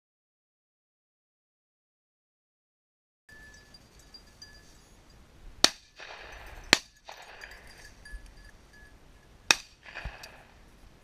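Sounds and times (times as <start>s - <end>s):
shotgun shots: 5.6s - 7.7s, 9.5s - 10.6s.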